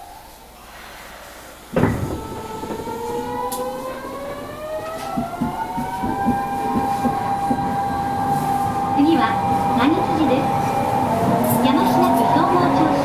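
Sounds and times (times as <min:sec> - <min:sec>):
train traction motors whining: 0:01.6 - 0:13.0
low rumble of running gear: 0:01.7 - 0:08.1.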